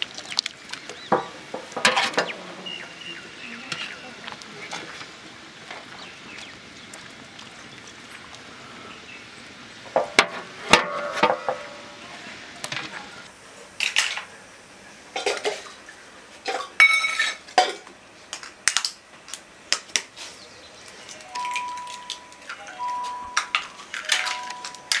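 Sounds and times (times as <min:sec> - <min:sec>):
metallic clinks against pots: 0:21.4 - 0:25.0.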